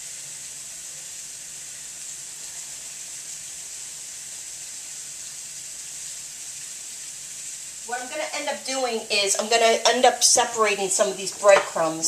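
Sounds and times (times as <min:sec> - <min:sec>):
butter and oil sizzling in a skillet: 0:00.0 - 0:12.0.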